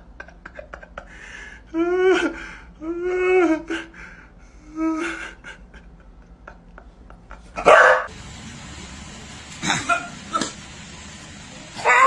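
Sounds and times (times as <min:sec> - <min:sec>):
loud burst of noise: 0:07.7 - 0:12.0
dog whining: 0:11.8 - 0:12.0.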